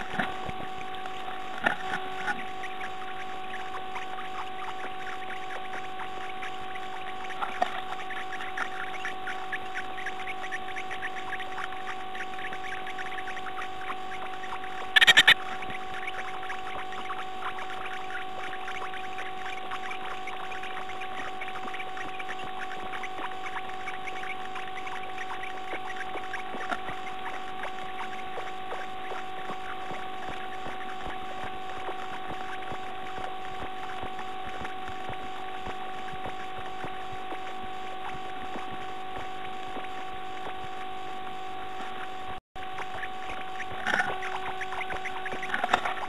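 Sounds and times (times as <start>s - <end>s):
electrical hum and hiss: 0.0s - 46.0s
bird scratching and rustling: 43.7s - 46.0s.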